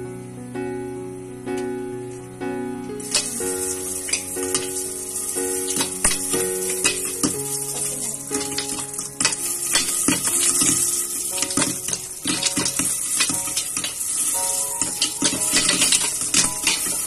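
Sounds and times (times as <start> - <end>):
hot oil hissing: 3.0 - 17.0
popcorn popping in covered pot: 5.6 - 17.0.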